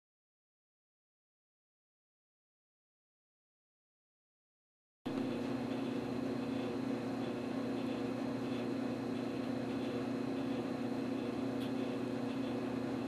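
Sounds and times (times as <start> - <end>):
steady hum with hiss: 5.1 - 13.0.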